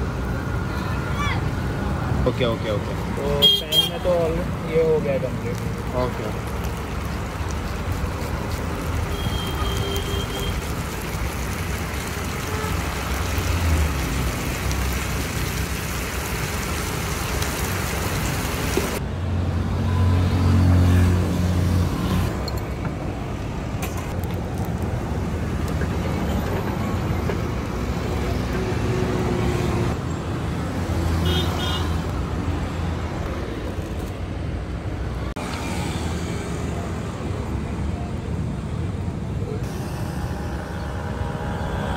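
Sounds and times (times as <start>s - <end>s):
road traffic rushing past: 0.0s - 24.2s, 24.9s - 41.9s
vehicle engine drone: 39.4s - 41.9s.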